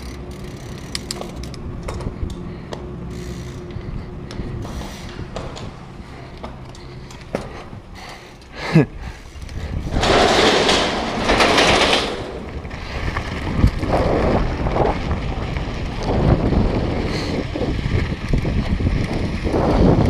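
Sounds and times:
tyres rumbling on gravel: 9.0s - 20.0s
wind buffeting microphone: 9.0s - 20.0s.

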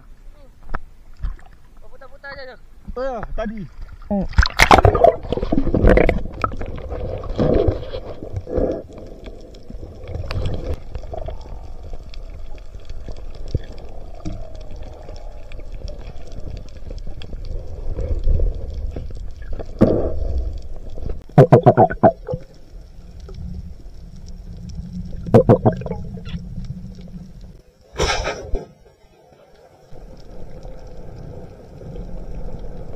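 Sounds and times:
underwater rumble and gurgle: 3.2s - 32.9s
muffled pitched sounds: 21.4s - 22.4s.

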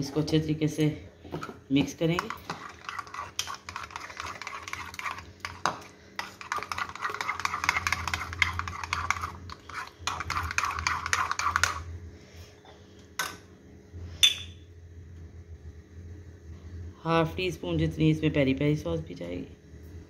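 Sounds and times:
metal spoon stirring in a bowl: 1.4s - 11.9s.

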